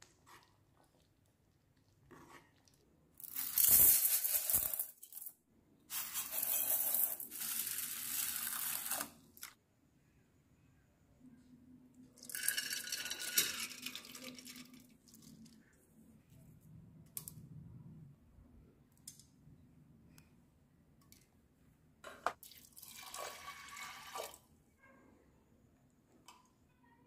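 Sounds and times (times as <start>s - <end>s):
water pouring into steel bowl: 22.4s - 24.4s.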